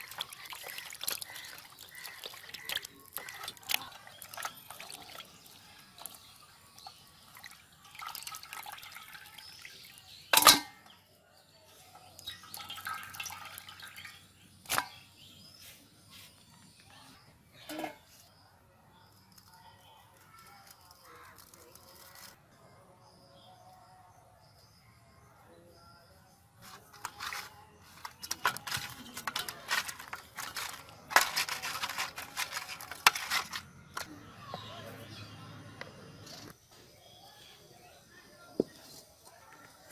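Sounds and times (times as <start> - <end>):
water sloshing in a basin: 0.0 - 11.0, 11.8 - 15.0, 26.6 - 35.0
fish scraping on metal plate: 26.6 - 34.2.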